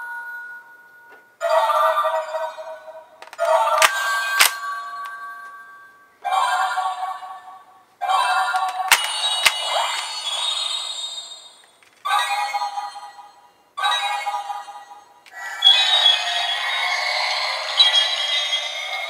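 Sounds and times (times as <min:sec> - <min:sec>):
toy electronic sound effects: 0:08.0 - 0:12.7, 0:15.3 - 0:19.0
sharp plastic clicks: 0:08.6 - 0:09.6.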